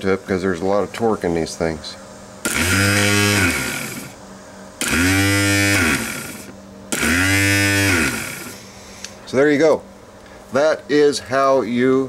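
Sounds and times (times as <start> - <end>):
starter motor whirring whine: 2.4 - 4.2, 4.8 - 8.6.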